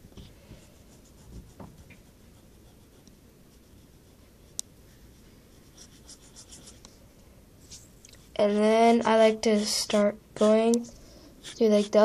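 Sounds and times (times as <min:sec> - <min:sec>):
pencil scratching on paper: 0:00.6 - 0:06.8, 0:09.2 - 0:12.0.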